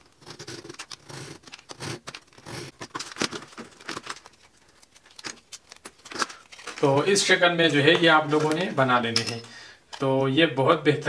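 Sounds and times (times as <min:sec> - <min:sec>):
blade scratching mica sheet: 0:00.0 - 0:02.8.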